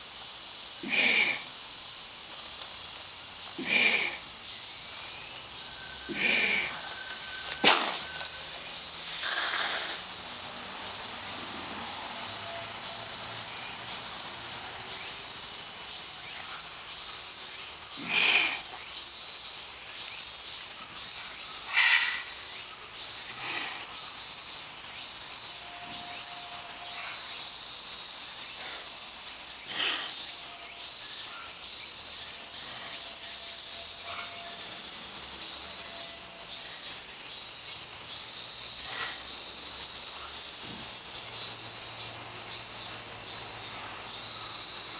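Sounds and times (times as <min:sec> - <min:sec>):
high-pitched insect chorus: 0:00.0 - 0:44.9
lynx snorting: 0:00.8 - 0:01.5, 0:03.6 - 0:04.2, 0:06.1 - 0:06.9, 0:09.1 - 0:10.0, 0:18.0 - 0:18.8.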